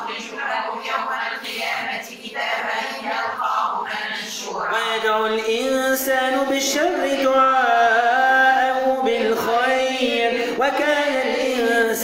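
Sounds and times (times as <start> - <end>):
man chanting melodic recitation: 4.7 - 12.0.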